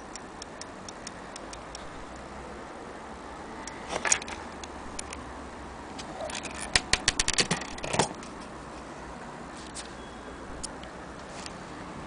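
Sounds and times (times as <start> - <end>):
metallic clicks and rattles: 6.2 - 8.5.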